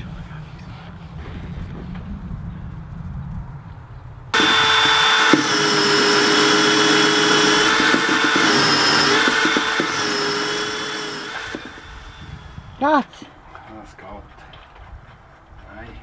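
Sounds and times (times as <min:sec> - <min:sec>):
power drill with hole saw cutting: 0:04.4 - 0:12.8.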